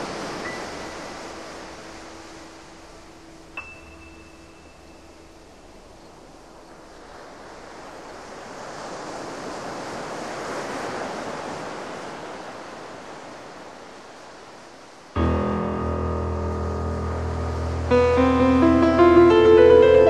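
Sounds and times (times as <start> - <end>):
rushing surf-like noise: 0.0 - 4.6, 5.5 - 20.0
music with piano and guitar: 15.2 - 20.0.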